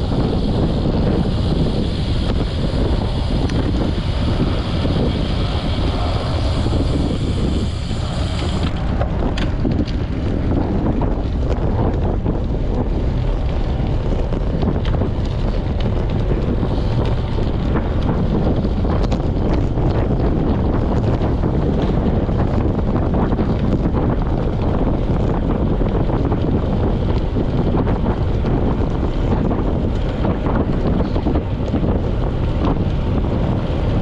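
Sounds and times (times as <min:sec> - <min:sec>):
high hiss: 0:00.0 - 0:08.8
wind buffeting microphone: 0:00.0 - 0:34.0.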